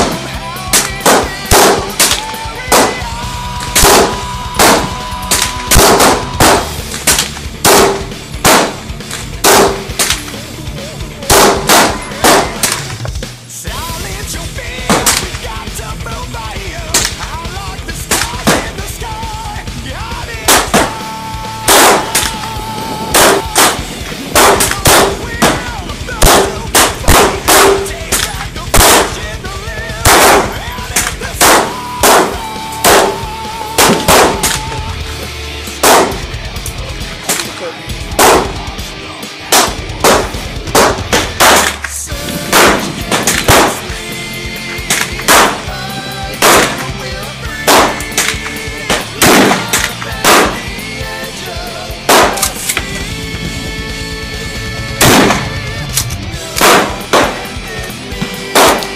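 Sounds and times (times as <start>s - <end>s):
pistol gunshots: 0.0s - 10.4s, 11.2s - 13.2s, 14.8s - 15.6s, 16.8s - 18.9s, 20.4s - 35.0s, 35.7s - 36.4s, 37.2s - 38.8s, 39.5s - 51.4s, 52.0s - 52.8s, 54.9s - 58.9s
rock music: 0.0s - 58.9s.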